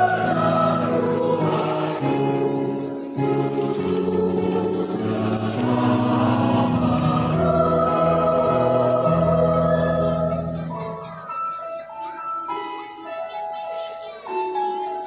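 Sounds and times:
mixed choir singing in harmony: 0:00.0 - 0:10.8.

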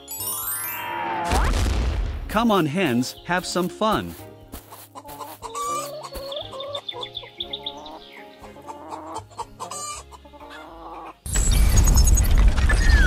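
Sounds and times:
light background music: 0:00.0 - 0:01.0, 0:02.3 - 0:12.8
chickens clucking: 0:04.5 - 0:11.3.

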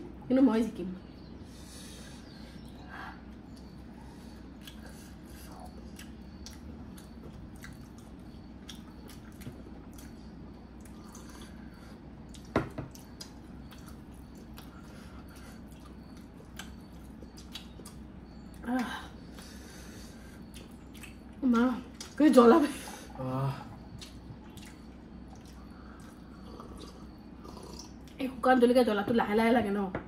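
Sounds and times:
low steady hum: 0:00.0 - 0:30.0
wet mouth eating noises: 0:15.6 - 0:18.6, 0:20.4 - 0:22.2, 0:23.8 - 0:28.2.

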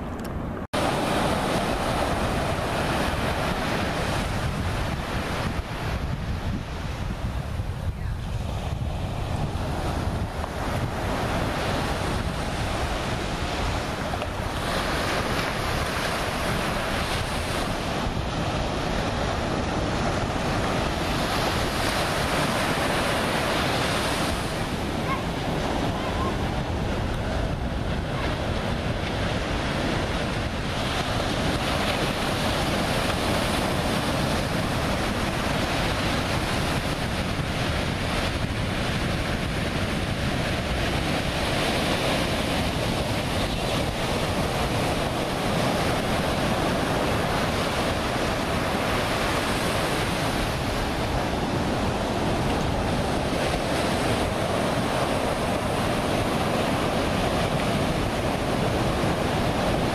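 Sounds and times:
ocean surf breaking: 0:00.0 - 0:59.9
wind on microphone: 0:00.0 - 0:59.9.

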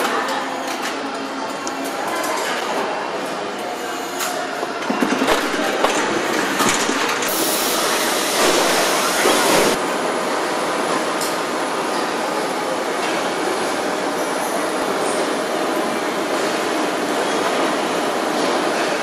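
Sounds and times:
machinery din: 0:04.8 - 0:09.8
loud hiss: 0:07.3 - 0:09.8.

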